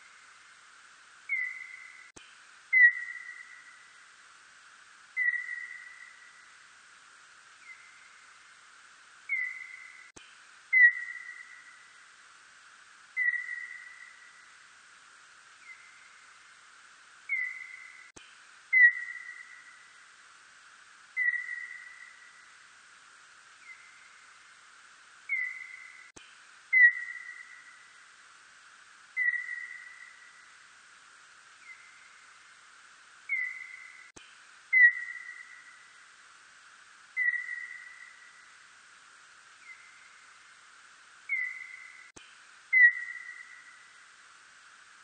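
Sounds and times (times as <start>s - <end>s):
steady hiss: 0.0s - 45.0s
whistle-like bat calls: 1.3s - 2.1s, 2.7s - 3.8s, 5.2s - 6.4s, 9.3s - 10.1s, 10.7s - 11.9s, 13.2s - 14.4s, 17.3s - 18.1s, 18.7s - 19.9s, 21.2s - 22.4s, 25.3s - 26.1s, 26.7s - 27.9s, 29.1s - 30.5s, 33.3s - 34.1s, 34.7s - 35.9s, 37.1s - 38.5s, 41.3s - 42.1s, 42.7s - 43.9s.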